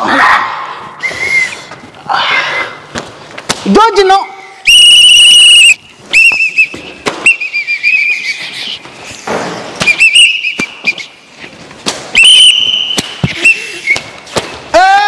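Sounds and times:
pea whistle blasts: 0:04.7 - 0:08.3, 0:09.8 - 0:11.1, 0:12.2 - 0:14.0.

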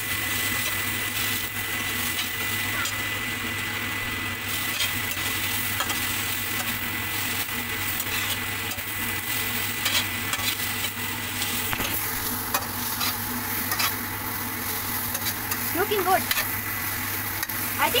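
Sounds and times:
food sizzling in oil: 0:00.0 - 0:18.0
spatula scraping metal wok: 0:04.5 - 0:17.9.

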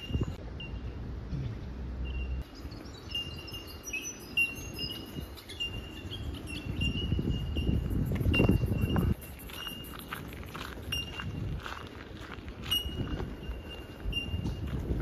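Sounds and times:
birds calling: 0:00.0 - 0:11.1.

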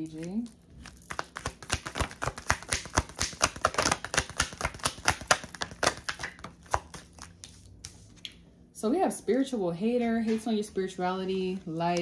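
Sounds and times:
cards being shuffled by hand: 0:01.1 - 0:08.2.

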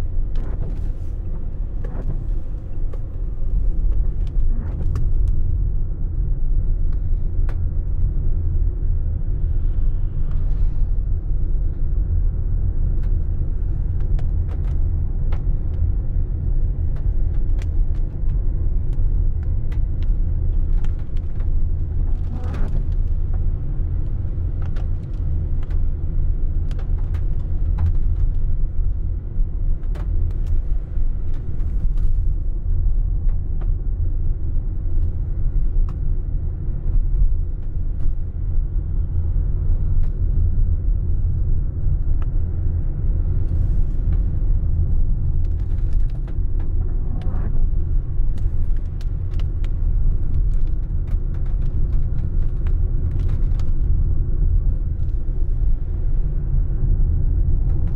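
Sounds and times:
car engine and tyre rumble: 0:00.0 - 0:57.9
raindrops ticking on windscreen: 0:12.9 - 0:40.5, 0:41.1 - 0:57.9.

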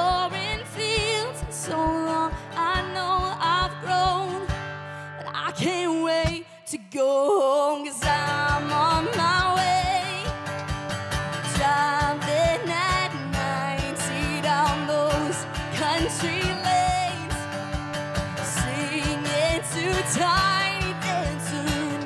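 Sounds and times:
strummed acoustic guitar: 0:00.0 - 0:06.4, 0:08.0 - 0:22.0
woman singing: 0:00.0 - 0:10.5, 0:11.4 - 0:17.6, 0:18.3 - 0:22.0
cajon beats: 0:08.0 - 0:22.0.

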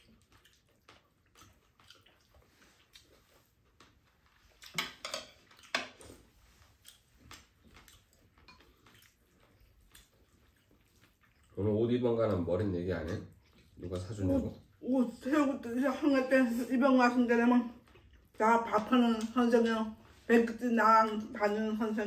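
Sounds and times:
faint chewing: 0:00.0 - 0:22.0.

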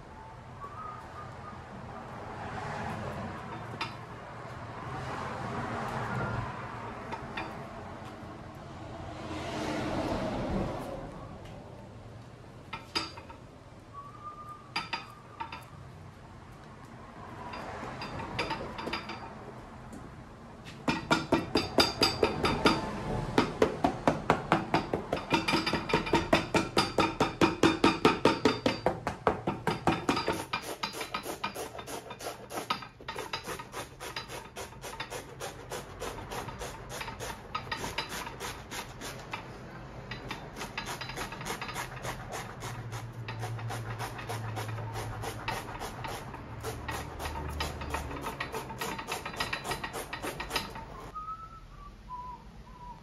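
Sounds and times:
scraping strokes on boot sole: 0:30.3 - 0:39.5, 0:40.5 - 0:51.1.

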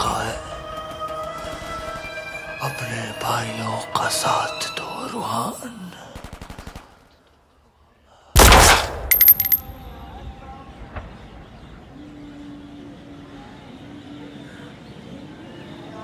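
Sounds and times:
sharp cracks with ringing tone: 0:08.4 - 0:09.8.

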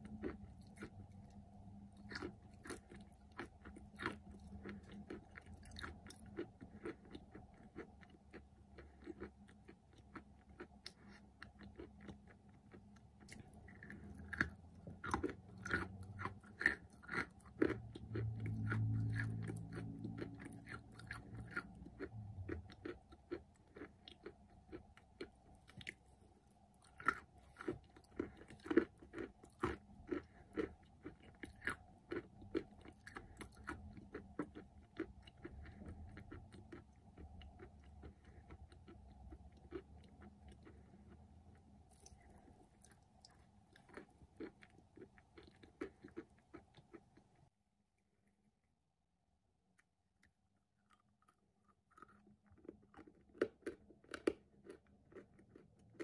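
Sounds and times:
crunchy chewing: 0:00.0 - 0:47.5, 0:50.2 - 0:56.0.

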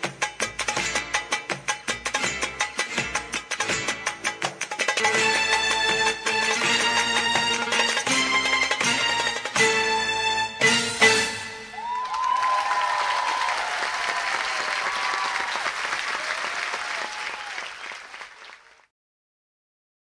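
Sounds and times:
cheering shouts: 0:11.6 - 0:18.1
audience applauding: 0:11.7 - 0:18.9.

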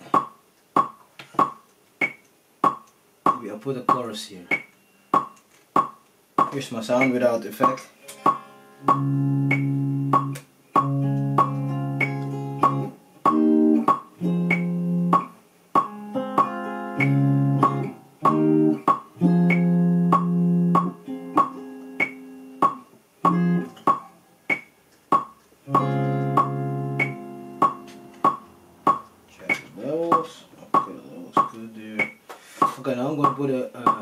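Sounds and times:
metronome clicking: 0:00.2 - 0:32.2
electric guitar notes: 0:08.0 - 0:23.9, 0:25.6 - 0:28.8.

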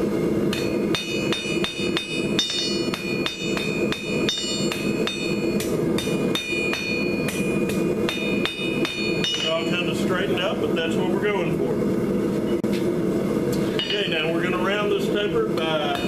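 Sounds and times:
steady low hum: 0:00.0 - 0:16.0
hammer striking steel on anvil: 0:00.5 - 0:09.9, 0:13.7 - 0:14.3, 0:15.6 - 0:16.0
anvil ringing: 0:00.5 - 0:10.0, 0:13.7 - 0:14.4.

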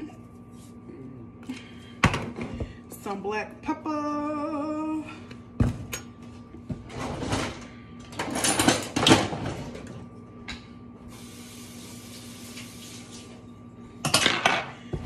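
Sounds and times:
kitchen items rattling and scraping: 0:06.7 - 0:10.0.

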